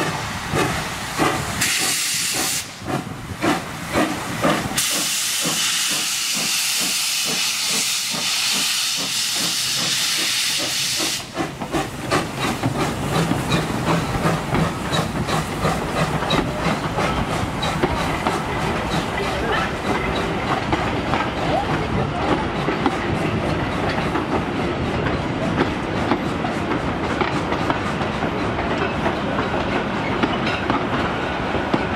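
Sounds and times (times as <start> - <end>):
steam hissing: 0.0 - 21.0
steam locomotive exhaust beats: 0.0 - 31.9
train wheels clicking on rail joints: 0.0 - 31.9
low rumble of wagons: 11.4 - 31.9.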